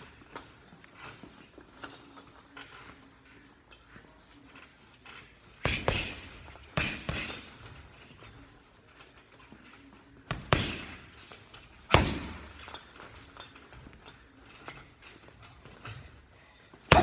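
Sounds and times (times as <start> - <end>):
gloves punching heavy bag: 5.6 - 7.9, 10.3 - 11.2, 11.8 - 12.6.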